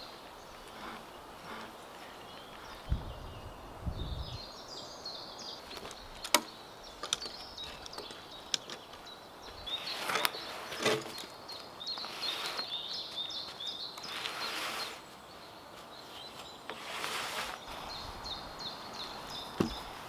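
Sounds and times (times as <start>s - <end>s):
birds chirping: 0.0s - 20.0s
log dragging scrape: 0.5s - 2.9s, 9.7s - 20.0s.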